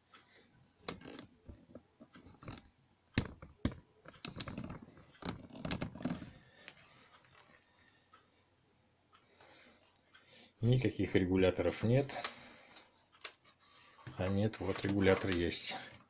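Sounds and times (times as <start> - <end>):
fingers rubbing plastic: 4.2 - 6.4.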